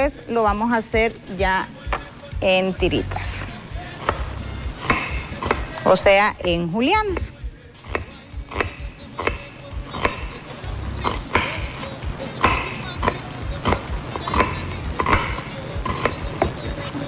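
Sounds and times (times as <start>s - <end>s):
knife chopping on wooden board: 4.0s - 5.8s, 6.4s - 10.4s, 11.0s - 11.8s, 12.4s - 16.7s.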